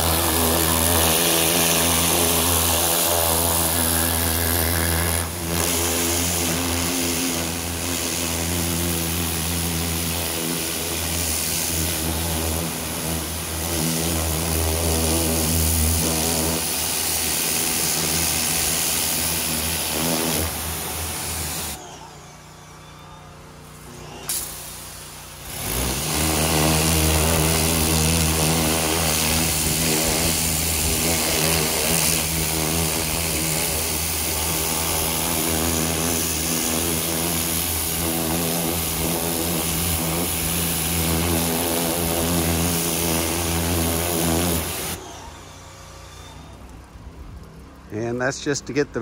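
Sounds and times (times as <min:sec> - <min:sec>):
water jet hissing on boat: 0:00.0 - 0:21.8, 0:24.3 - 0:46.1
pressure washer motor hum: 0:00.0 - 0:49.0.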